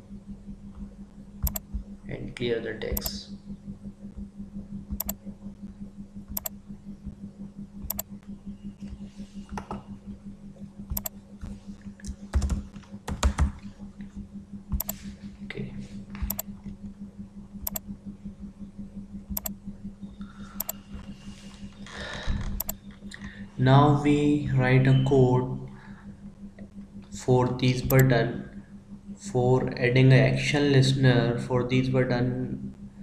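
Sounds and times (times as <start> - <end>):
steady low hum: 0.0 - 33.0
mouse clicks: 1.4 - 1.7, 3.0 - 3.2, 5.0 - 5.2, 6.3 - 6.6, 7.8 - 8.1, 10.9 - 11.1, 14.8 - 15.0, 16.2 - 16.5, 17.6 - 17.8, 19.3 - 19.6, 20.6 - 20.8, 22.6 - 22.8, 27.9 - 28.1
keyboard keystrokes: 1.4 - 1.8, 4.9 - 5.2, 6.3 - 6.5, 7.8 - 8.1, 10.9 - 11.1, 16.2 - 16.5, 17.6 - 17.8, 22.6 - 22.8, 27.9 - 28.1.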